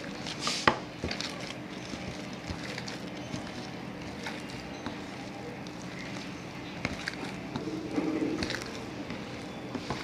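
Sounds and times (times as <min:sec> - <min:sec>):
hands kneading dough: 0:00.0 - 0:10.0.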